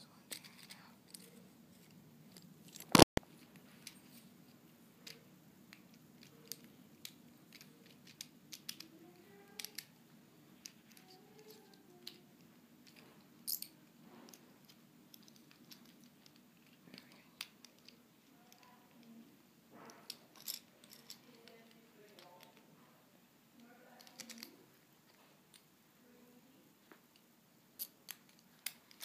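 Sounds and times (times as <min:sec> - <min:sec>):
small plastic parts clicking: 0:05.0 - 0:09.9, 0:10.6 - 0:13.7, 0:14.3 - 0:19.2, 0:23.6 - 0:24.6, 0:27.8 - 0:29.0.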